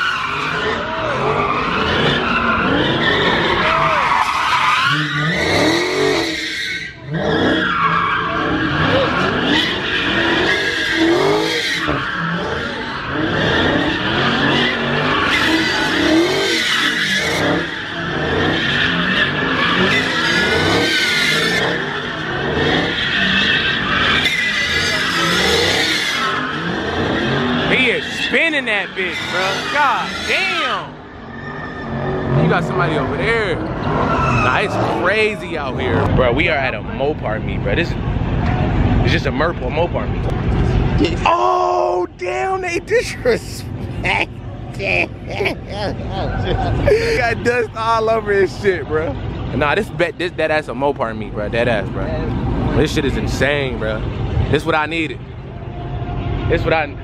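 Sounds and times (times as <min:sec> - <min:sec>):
tyres squealing: 0:00.0 - 0:36.1
car engine revving: 0:00.0 - 0:41.3, 0:42.3 - 0:57.0.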